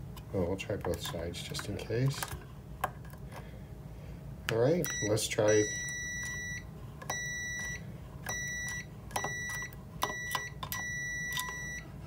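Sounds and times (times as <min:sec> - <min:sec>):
multimeter high beeps: 0:04.8 - 0:11.9.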